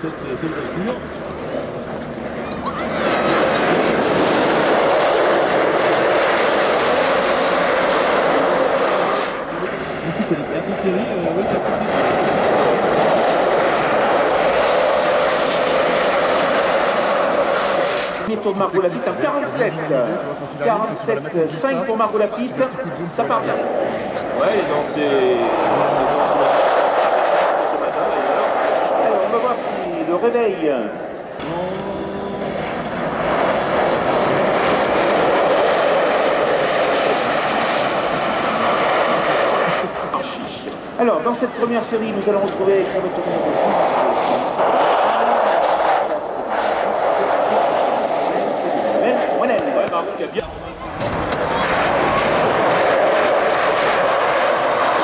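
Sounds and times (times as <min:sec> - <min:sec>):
electric car motor rushing: 0:02.3 - 0:18.4.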